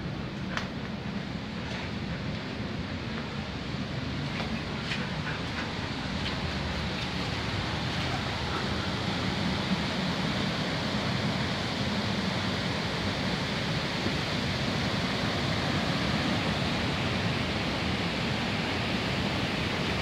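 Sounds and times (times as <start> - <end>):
fast-flowing stream rushing: 4.0 - 20.0.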